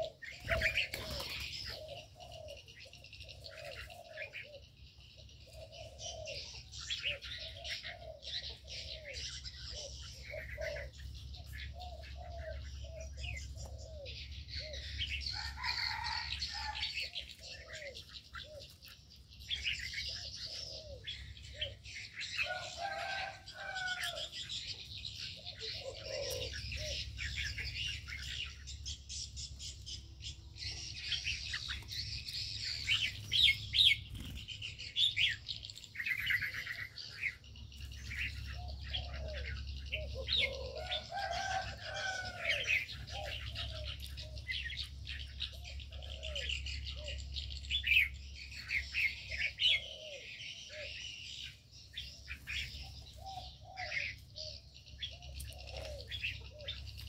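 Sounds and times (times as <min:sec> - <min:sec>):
birds chirping: 0:00.0 - 0:57.0
low rounded bird calls: 0:00.0 - 0:57.0.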